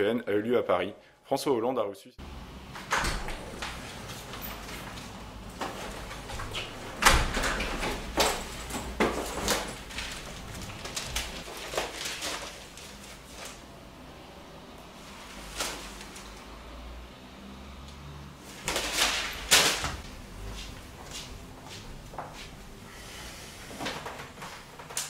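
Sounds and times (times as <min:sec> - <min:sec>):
newspaper rustling: 0:07.9 - 0:14.0, 0:15.0 - 0:16.5, 0:18.4 - 0:20.8.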